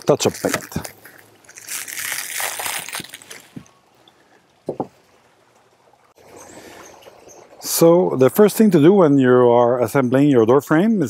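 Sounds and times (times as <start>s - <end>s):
plastic wrap crinkling: 0.0s - 3.7s.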